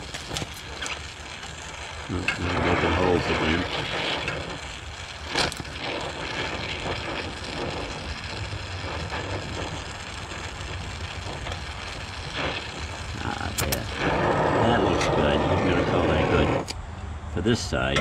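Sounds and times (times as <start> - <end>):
welder hissing: 0.0 - 16.8
sharp click: 13.6 - 13.9.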